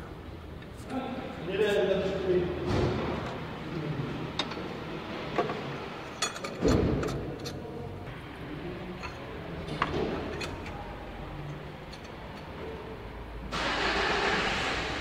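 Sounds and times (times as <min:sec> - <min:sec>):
metal tools clinking: 0:06.1 - 0:07.6, 0:09.0 - 0:10.8.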